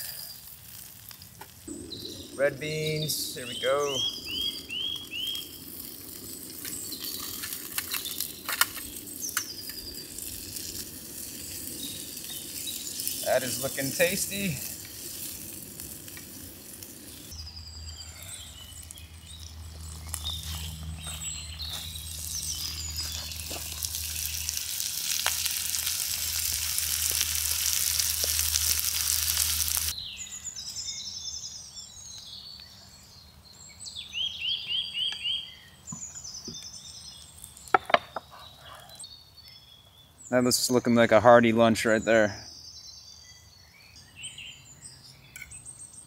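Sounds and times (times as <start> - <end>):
food sizzling in skillet: 0.0 - 17.4, 21.8 - 30.0
birds chirping: 1.1 - 46.0.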